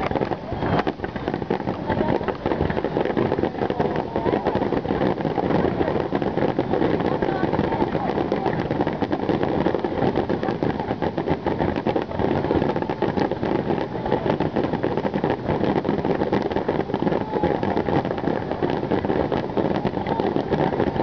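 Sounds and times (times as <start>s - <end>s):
fireworks bursting and crackling: 0.0s - 21.0s.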